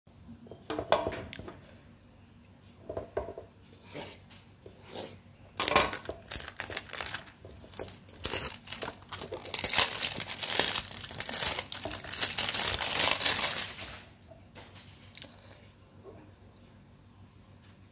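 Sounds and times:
plastic film crinkling and tearing: 5.6 - 14.1.

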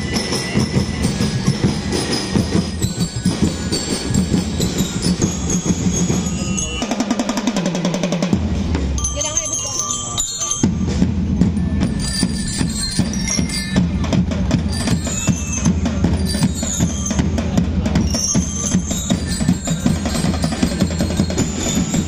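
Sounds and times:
bell lyres ringing: 0.0 - 7.7, 8.9 - 22.0
marching drums beating: 0.0 - 22.0.

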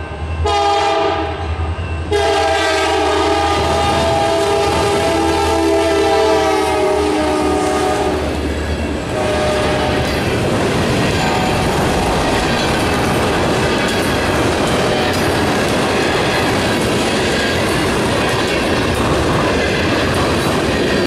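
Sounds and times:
locomotive horn chord: 0.4 - 1.4, 2.1 - 8.2, 9.1 - 10.0
wheels clattering on rail: 7.8 - 21.0.

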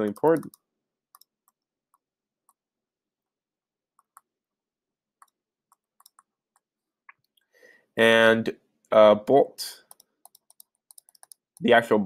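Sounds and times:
stylus tapping tablet screen: 0.0 - 2.7, 3.9 - 4.5, 5.1 - 7.4, 9.9 - 11.8.

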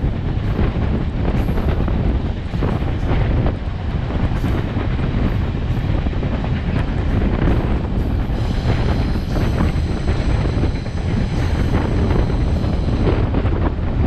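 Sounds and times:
train coaches rumbling on rails: 0.0 - 14.0
wind buffeting microphone: 0.0 - 14.0.

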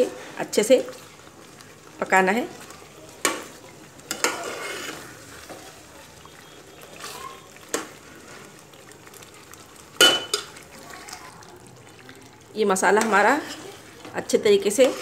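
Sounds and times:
food sizzling in oil: 0.0 - 15.0
metal spoon stirring in pot: 0.0 - 15.0
spoon knocking against pot: 10.0 - 10.5.

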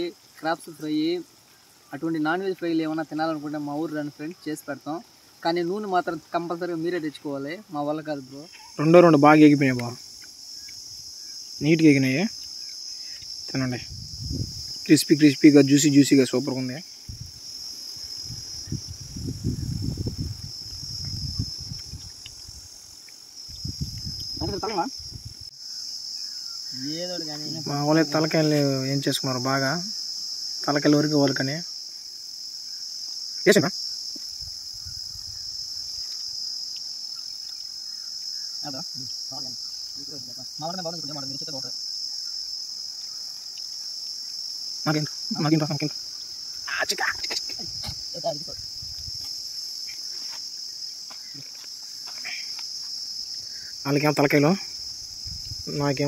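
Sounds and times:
insects buzzing: 0.0 - 56.0.

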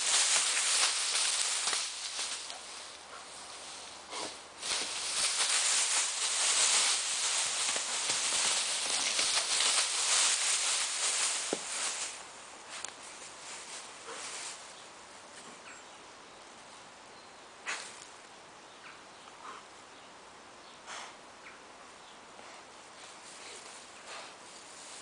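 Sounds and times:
dry grass rustling: 0.0 - 15.4, 22.8 - 25.0.

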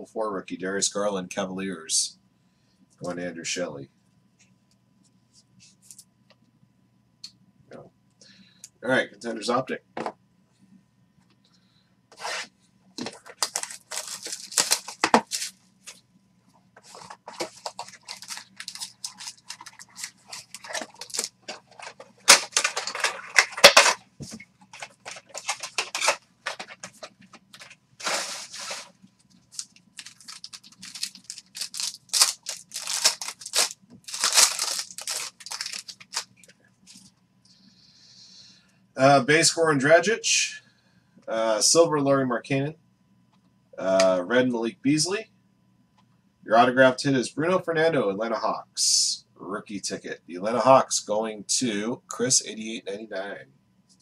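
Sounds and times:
cards sliding through fingers: 12.1 - 12.5
cardboard and foil wrapper tearing: 13.2 - 15.6, 16.9 - 24.0, 24.7 - 26.8, 27.6 - 28.9, 29.5 - 36.3.

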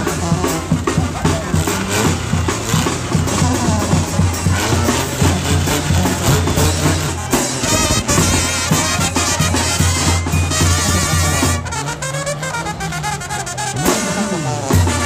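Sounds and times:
sousaphone bass line: 0.0 - 11.6
bass drum with cymbal: 0.0 - 12.6, 13.7 - 15.0
trumpets and trombones: 0.0 - 15.0.

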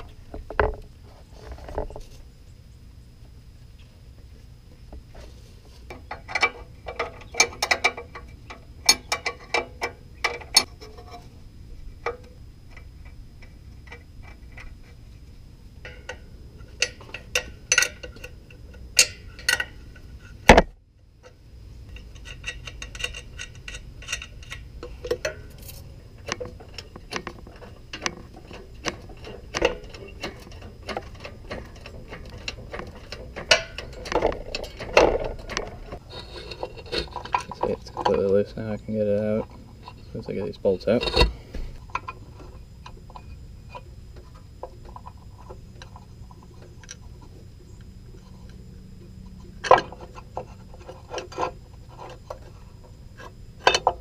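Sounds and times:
tools clinking against metal: 16.8 - 19.8, 21.9 - 35.7.

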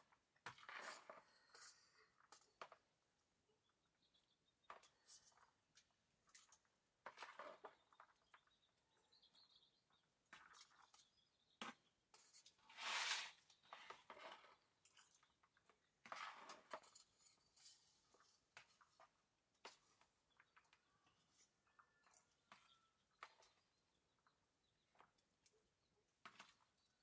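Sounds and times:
chopsticks stirring noodles: 12.1 - 23.6.

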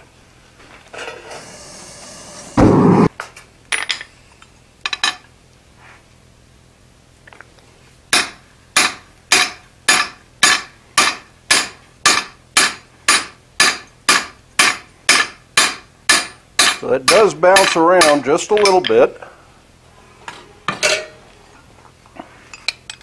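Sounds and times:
loud thump: 2.6 - 3.1
hammer striking metal: 8.2 - 18.9.

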